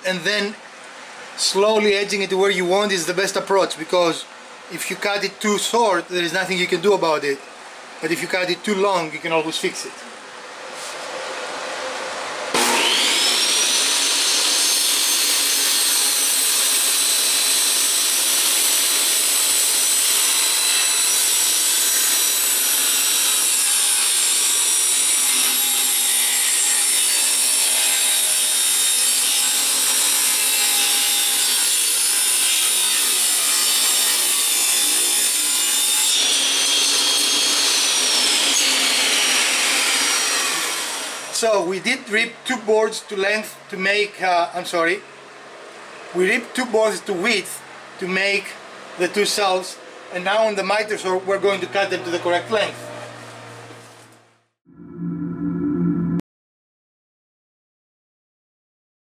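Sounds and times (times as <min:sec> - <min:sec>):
table saw whining: 0:12.5 - 0:41.4
saw ripping wood: 0:12.6 - 0:41.4.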